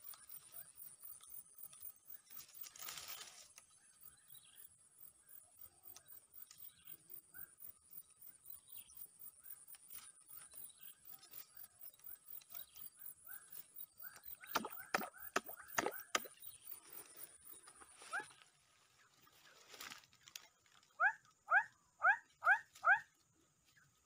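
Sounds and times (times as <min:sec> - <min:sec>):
small animals chirping: 0:11.1 - 0:18.4.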